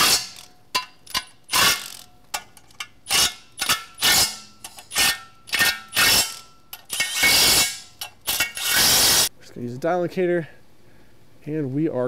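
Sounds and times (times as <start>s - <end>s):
impact wrench bursts: 0.0s - 0.5s, 1.1s - 2.1s, 3.0s - 9.3s.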